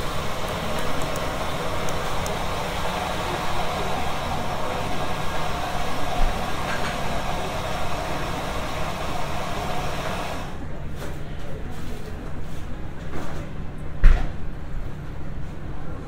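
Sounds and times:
machine humming: 0.0s - 10.6s.

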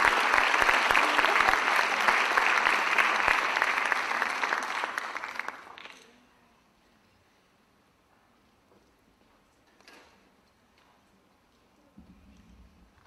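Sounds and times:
audience applauding: 0.0s - 6.0s.

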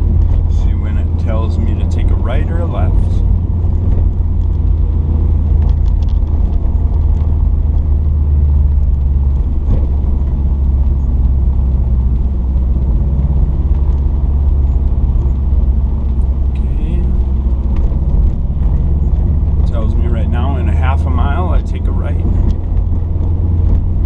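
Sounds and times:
car engine rumble from inside: 0.0s - 24.0s
tyre noise on road: 0.0s - 24.0s.

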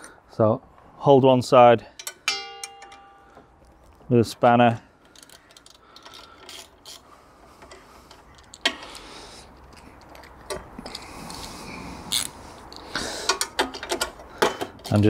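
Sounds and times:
sharp metallic knock: 2.3s - 3.3s
spanner clicking on bolts: 5.0s - 7.0s.

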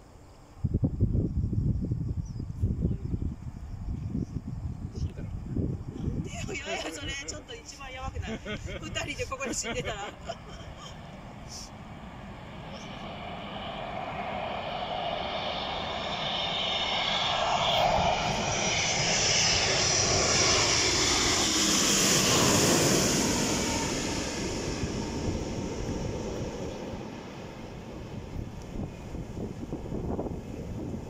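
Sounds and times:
high jet engine whine: 0.0s - 31.0s
jet airliner passing overhead: 0.1s - 31.0s.

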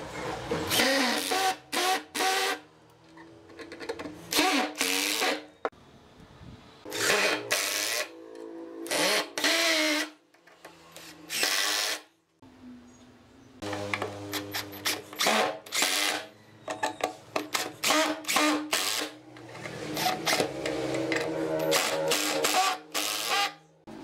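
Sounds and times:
cordless drill driving screws: 11.0s - 12.0s, 13.9s - 16.3s, 17.5s - 23.6s.

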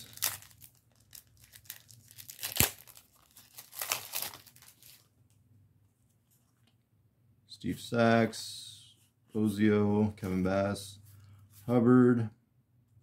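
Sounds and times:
wrapper tearing and crinkling: 0.0s - 5.1s
wrapper sharp snap: 1.7s - 4.4s.

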